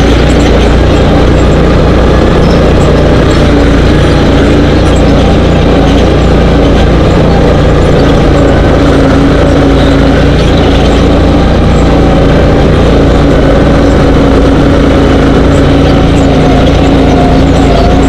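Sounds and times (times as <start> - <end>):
dune buggy engine running: 0.0 - 18.0.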